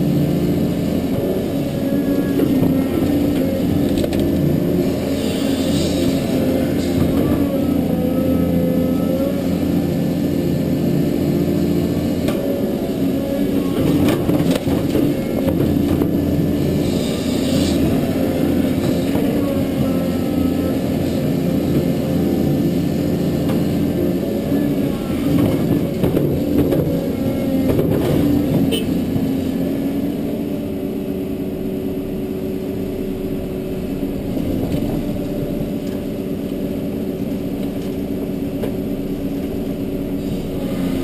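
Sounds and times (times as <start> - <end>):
hydraulics working: 0.0 - 30.5
excavator diesel engine running: 0.0 - 41.0.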